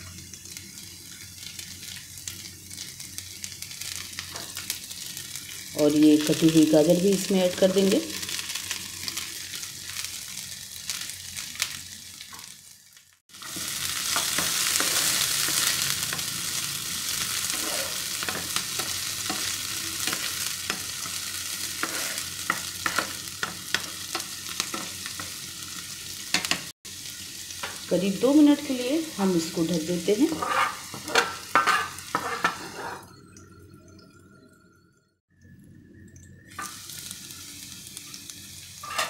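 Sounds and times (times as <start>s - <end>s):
vegetables sizzling in oil: 0.0s - 33.2s, 36.4s - 39.0s
wooden spatula scraping pan: 17.5s - 18.4s, 21.8s - 22.3s, 30.2s - 33.1s.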